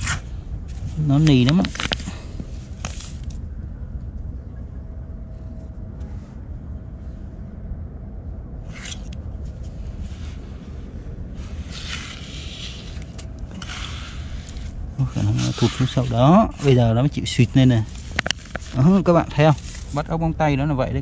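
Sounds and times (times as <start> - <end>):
wind buffeting microphone: 0.0 - 21.0
hands digging in wet sand: 11.4 - 16.9.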